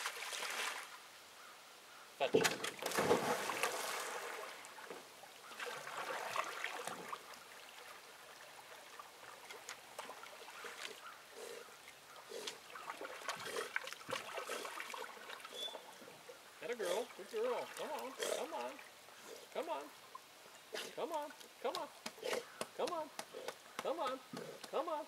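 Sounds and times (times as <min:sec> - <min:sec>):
water lapping and trickling: 0:00.0 - 0:01.0, 0:02.7 - 0:24.9.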